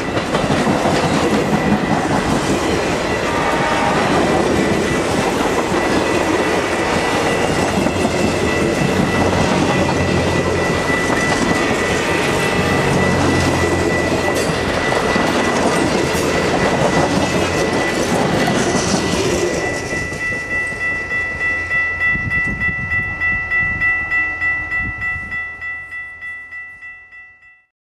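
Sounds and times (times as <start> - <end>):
train wheels rumbling and clattering: 0.0 - 21.6
crossing bell ringing: 0.0 - 27.7.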